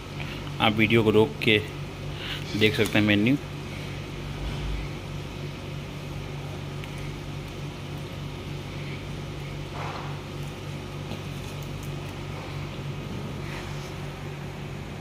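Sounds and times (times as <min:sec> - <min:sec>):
machinery hum: 0:00.0 - 0:15.0
low rumble: 0:04.2 - 0:05.4.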